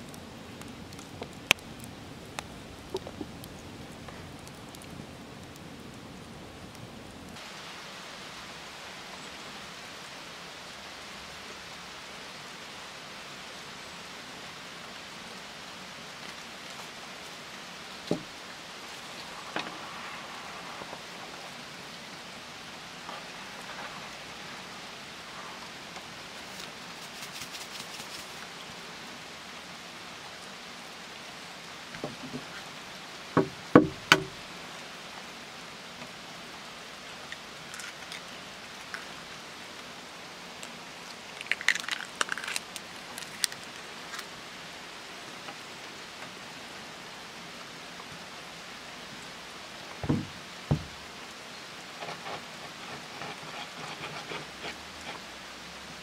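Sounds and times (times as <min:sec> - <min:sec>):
outdoor ambience hiss: 0:00.0 - 0:56.0
eggshell cracking: 0:37.7 - 0:39.1, 0:41.1 - 0:44.3.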